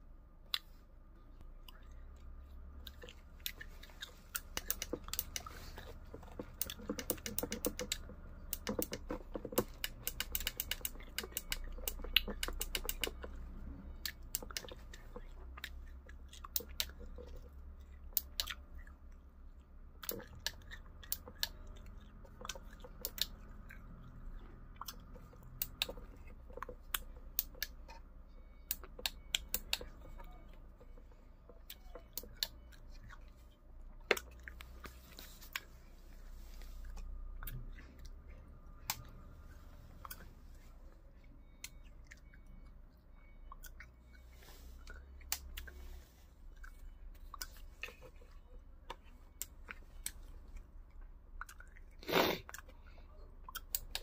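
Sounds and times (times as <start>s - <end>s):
plastic keypad buttons clicking: 6.4s - 13.3s.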